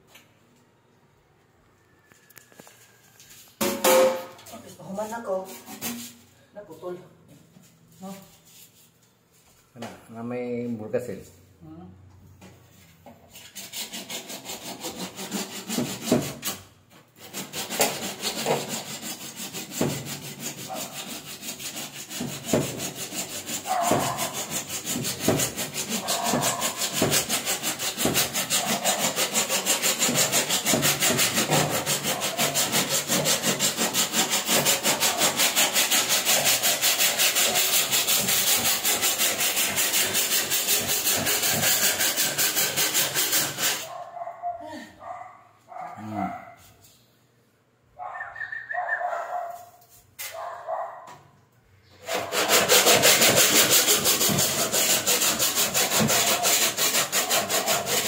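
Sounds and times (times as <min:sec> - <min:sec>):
hand saw cutting plastic pipe: 0:13.3 - 0:16.6, 0:17.2 - 0:43.9, 0:52.0 - 0:58.0.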